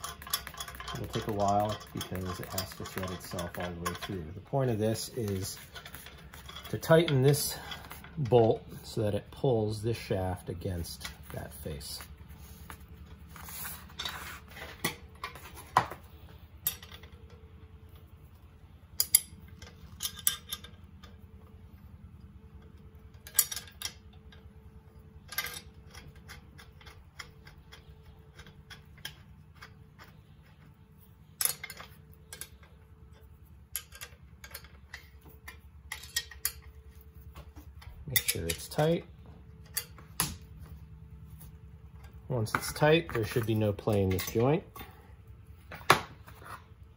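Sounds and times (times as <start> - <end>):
metallic clinks and clicks: 0.0 - 8.2
steady low hum: 0.0 - 46.9.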